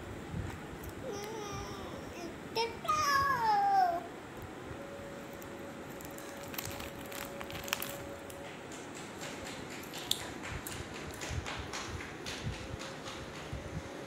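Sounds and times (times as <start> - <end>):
foil snack packet crinkling: 5.9 - 8.3.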